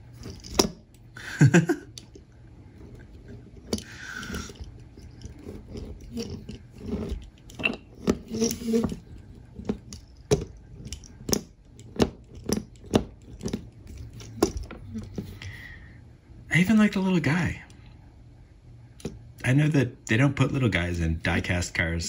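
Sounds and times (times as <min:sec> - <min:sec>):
soft scraping and rustling: 0:02.7 - 0:10.1.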